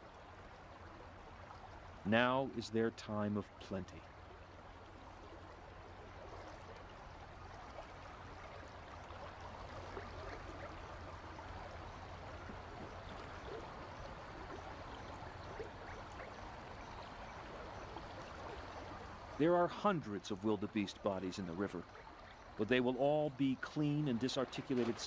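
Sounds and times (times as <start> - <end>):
river water flowing: 0.0 - 25.0.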